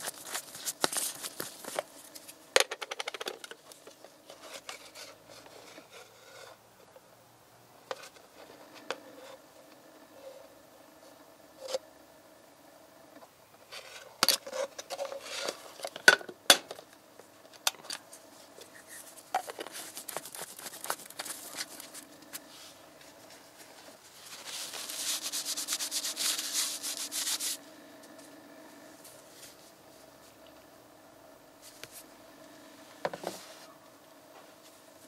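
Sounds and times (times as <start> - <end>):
faint steady hum: 0.0 - 35.0
rapid scraping clicks: 17.6 - 27.6.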